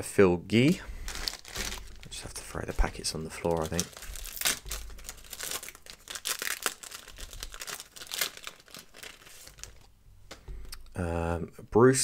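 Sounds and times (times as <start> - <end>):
wrapper crinkling and tearing: 1.0 - 10.0.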